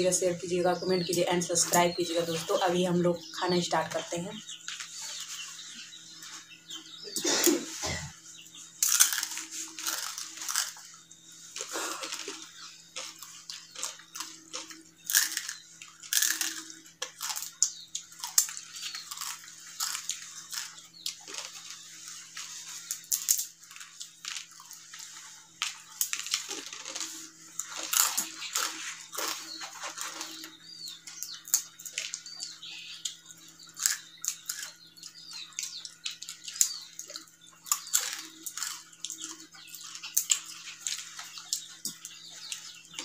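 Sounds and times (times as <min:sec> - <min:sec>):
faint steady hum: 0:00.0 - 0:43.0
crunching snack: 0:08.7 - 0:43.0.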